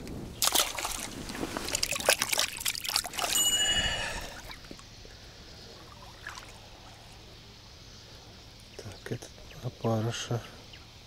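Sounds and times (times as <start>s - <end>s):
quiet outdoor background: 0.0s - 11.0s
hands splashing in water: 0.4s - 4.6s
high ringing chime: 3.2s - 4.6s.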